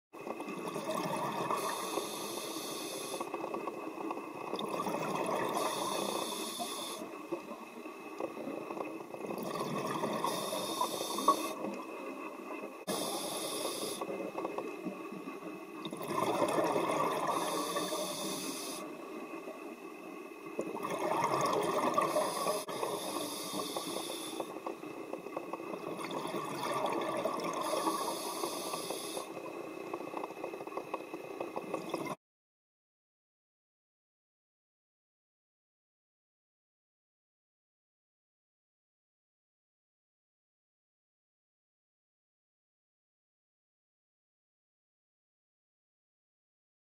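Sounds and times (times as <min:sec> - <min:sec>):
burbling exhaled bubbles: 0:00.5 - 0:01.8, 0:04.5 - 0:06.1, 0:09.2 - 0:11.6, 0:15.8 - 0:17.6, 0:20.6 - 0:22.8, 0:25.8 - 0:28.0
regulator hissing inhale: 0:01.6 - 0:03.3, 0:05.6 - 0:07.1, 0:10.2 - 0:11.6, 0:12.9 - 0:14.2, 0:17.3 - 0:19.0, 0:22.0 - 0:24.6, 0:27.6 - 0:29.4.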